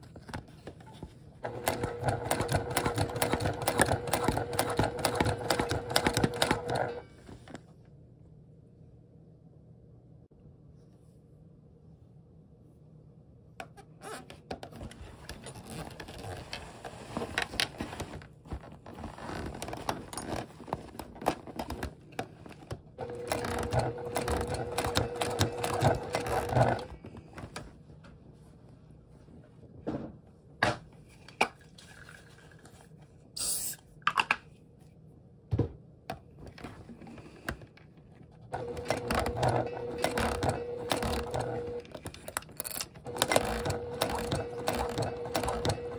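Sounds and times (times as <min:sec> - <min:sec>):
sewing machine stitching: 0:01.4 - 0:07.1, 0:23.0 - 0:27.0, 0:38.5 - 0:45.9
vinyl scraping and rustling: 0:14.0 - 0:22.9.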